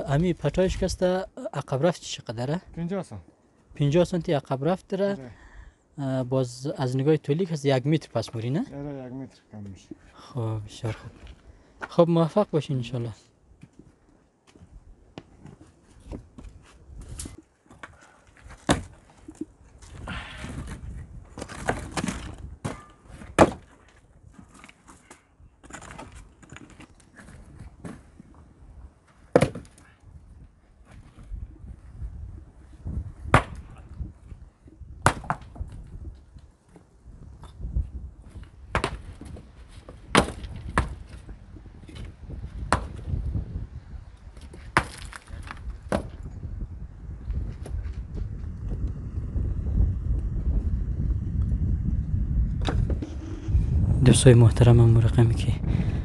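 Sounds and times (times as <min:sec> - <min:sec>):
wind rumble on microphone: 0:14.6 - 0:17.4, 0:18.5 - 0:23.4, 0:29.8 - 0:56.0
stones knocking together: 0:17.2 - 0:23.8, 0:38.7 - 0:41.3, 0:44.4 - 0:46.2.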